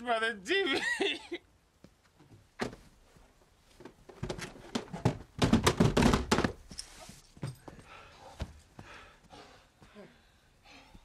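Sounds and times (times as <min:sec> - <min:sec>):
television knocking and thudding on floor: 0:03.9 - 0:06.7.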